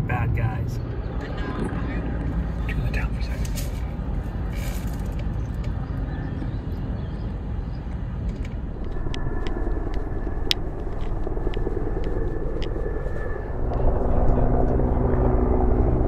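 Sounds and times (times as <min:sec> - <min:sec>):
traffic rumble: 0:00.0 - 0:16.0
wind: 0:00.0 - 0:16.0
sharp clicks: 0:08.2 - 0:13.4.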